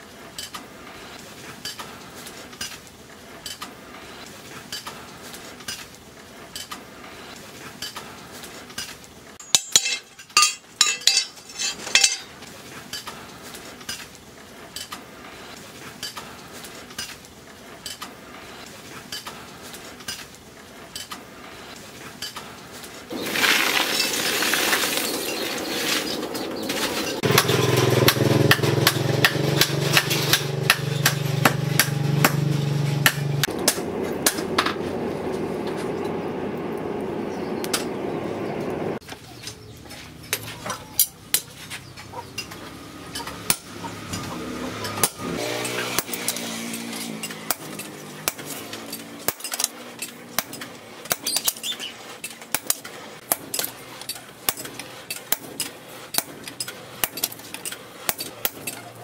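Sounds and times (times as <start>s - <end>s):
loud ringing metal clinks: 9.4s - 12.3s
metal guide bar clinking and scraping: 9.4s - 12.4s
low hum: 30.6s - 39.0s.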